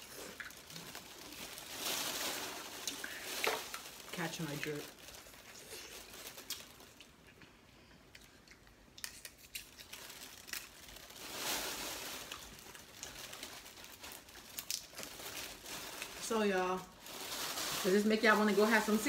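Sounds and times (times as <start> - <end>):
plastic bags crinkling: 0.0 - 7.2, 9.0 - 19.0
crab shells cracking: 8.2 - 11.0, 14.2 - 15.1.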